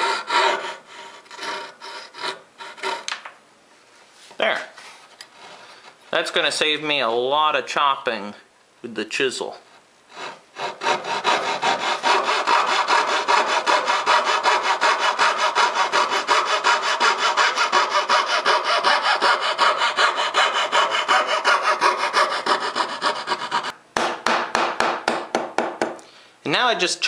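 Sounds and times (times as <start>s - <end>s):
fret saw cutting wood: 0.0s - 3.1s, 10.1s - 23.7s.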